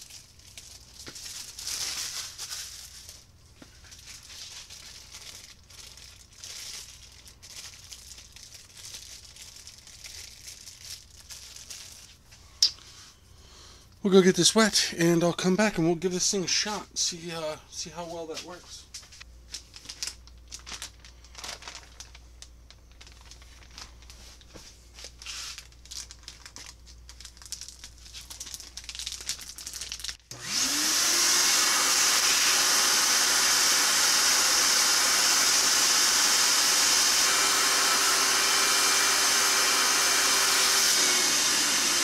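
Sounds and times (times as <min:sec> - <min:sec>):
plastic bag crinkling: 0:00.0 - 0:12.4, 0:19.5 - 0:30.3
vacuum cleaner running: 0:30.3 - 0:42.0.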